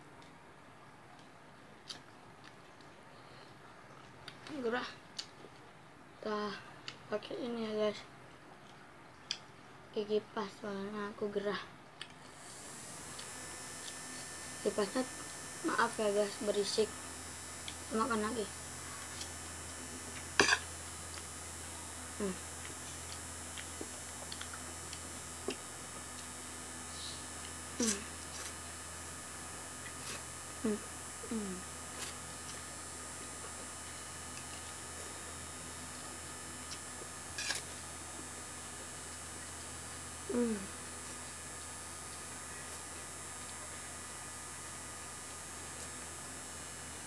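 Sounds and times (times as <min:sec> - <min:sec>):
electric fan humming: 0:09.9 - 0:47.0.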